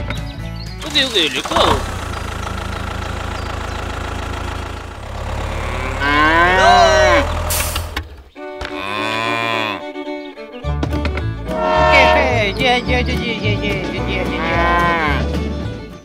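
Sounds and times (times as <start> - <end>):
low engine drone: 1.6 - 8.0, 11.5 - 12.6
cow mooing: 5.0 - 7.5, 8.7 - 10.0, 11.5 - 12.5, 14.4 - 15.3.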